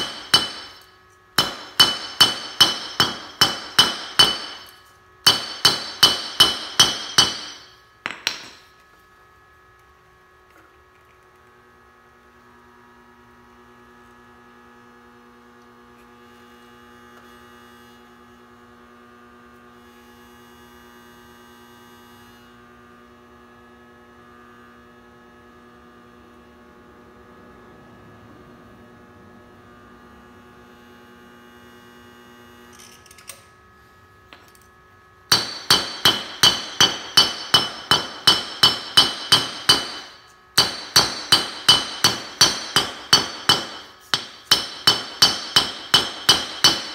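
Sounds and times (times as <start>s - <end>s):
hammer blows on anvil: 0.0s - 8.7s, 35.3s - 46.9s
induction heater humming: 0.0s - 8.8s, 24.9s - 46.9s.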